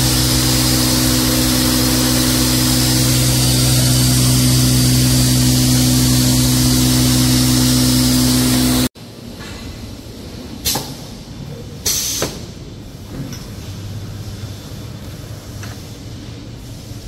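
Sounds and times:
folding machine humming: 0.0 - 8.9
workshop noise: 0.0 - 14.0.

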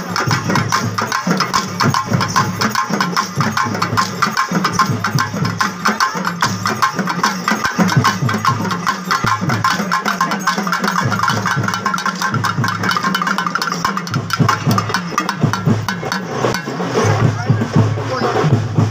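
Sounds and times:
drums beaten fast: 0.0 - 18.9.

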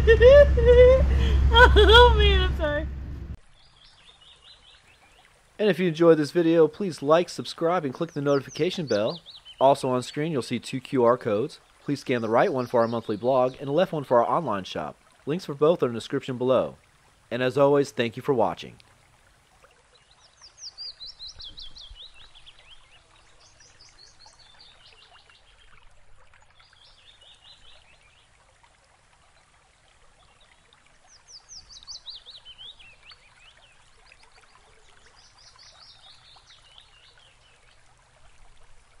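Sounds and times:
songbird singing: 3.4 - 16.6, 19.9 - 28.4, 30.2 - 37.9.

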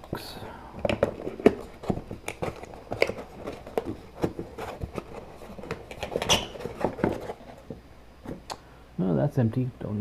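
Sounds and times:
cardboard box scraping and rustling: 1.2 - 7.7.

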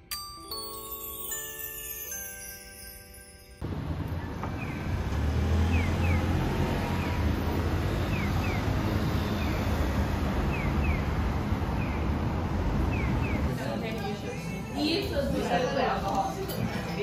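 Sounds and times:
bus engine rumble: 3.6 - 17.0
cars passing: 3.6 - 17.0.

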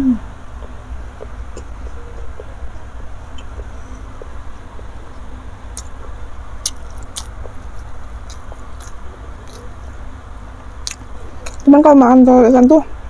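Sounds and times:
steady low hum: 0.0 - 13.0
close chewing: 5.7 - 10.0, 10.8 - 11.7
sharp mouth clicks: 6.6 - 7.6, 8.2 - 9.8, 10.8 - 11.7.

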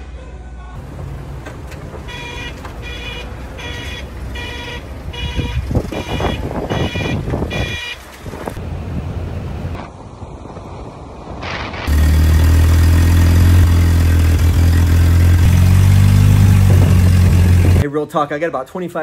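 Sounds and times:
forklift engine running: 0.8 - 8.7, 11.9 - 17.8
forklift warning beeper: 2.0 - 8.0.

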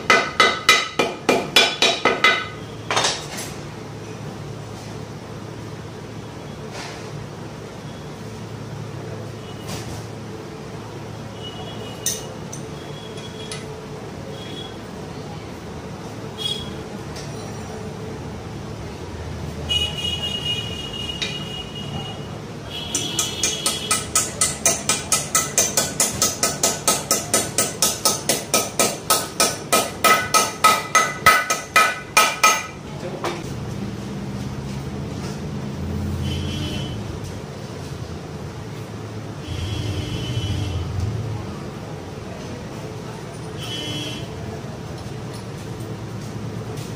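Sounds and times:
hammer striking metal: 0.0 - 3.3, 22.9 - 32.8
steady low hum: 36.5 - 43.0.

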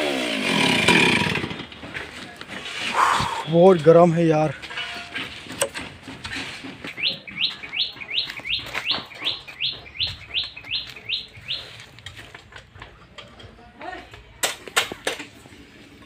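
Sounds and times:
bird calling rising notes: 7.0 - 11.9.

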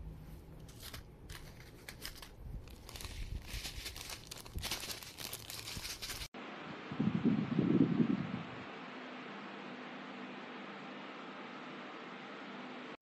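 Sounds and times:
paper sachets rustling: 0.7 - 6.3
plastic bag crinkling: 0.7 - 6.3.

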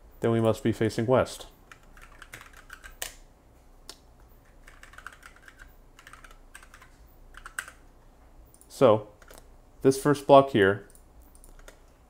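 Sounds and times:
computer keyboard typing: 1.7 - 3.2, 4.5 - 7.8, 10.9 - 11.8.

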